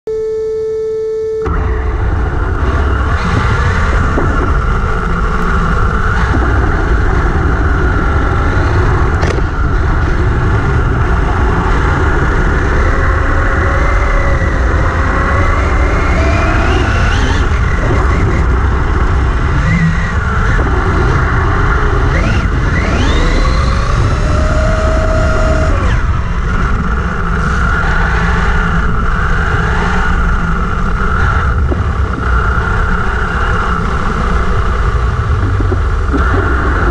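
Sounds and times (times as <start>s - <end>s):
low rumble of tyres in sand: 1.5s - 36.9s
rc car electric motor whine: 19.5s - 31.6s.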